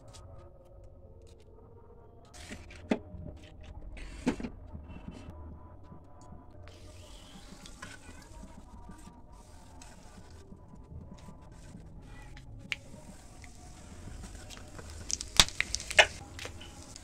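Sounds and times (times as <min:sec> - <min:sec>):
hot oil sizzling: 0:13.5 - 0:17.0.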